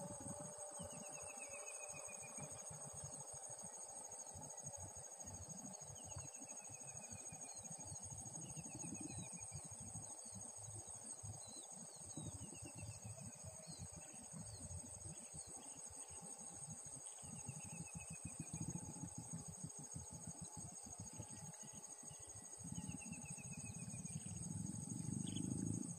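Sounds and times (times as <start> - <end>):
insects chirring: 0.0 - 25.9
wind rumbling on microphone: 11.5 - 15.1, 17.4 - 21.6, 22.6 - 25.9.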